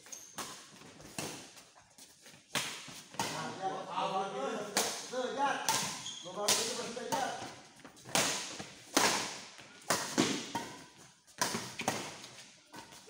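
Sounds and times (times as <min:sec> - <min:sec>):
rackets hitting shuttlecock: 0:04.7 - 0:13.0.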